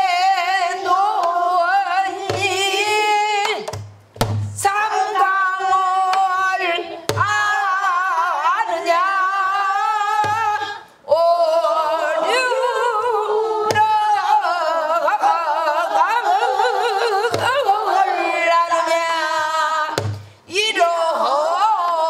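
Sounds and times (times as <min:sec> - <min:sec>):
woman singing with heavy vibrato: 0:00.0 - 0:03.8, 0:04.5 - 0:22.0
barrel drum strikes: 0:03.7 - 0:04.7, 0:20.0 - 0:20.3.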